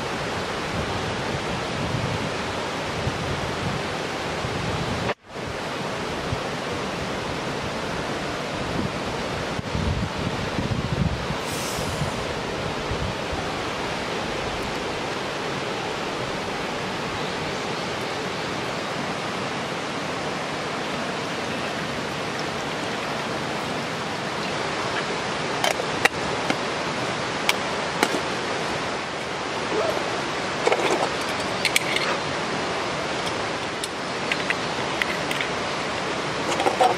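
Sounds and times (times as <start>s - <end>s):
rushing background noise: 0.0s - 36.9s.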